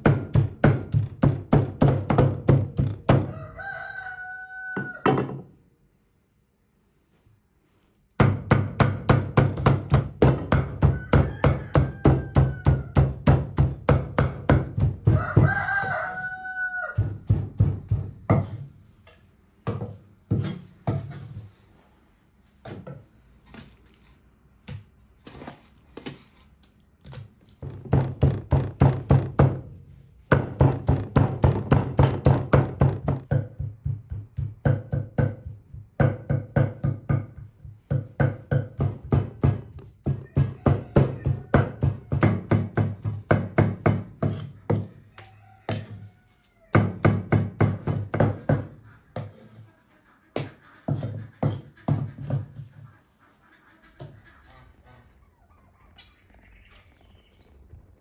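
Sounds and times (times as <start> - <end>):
cleavers chopping meat on wooden board: 0.0 - 3.3, 8.2 - 15.9, 16.9 - 18.6, 27.6 - 29.6, 30.3 - 44.9, 46.7 - 49.4
rooster crowing: 3.1 - 5.3, 10.6 - 13.2, 15.0 - 17.3, 40.0 - 42.5, 44.7 - 46.9.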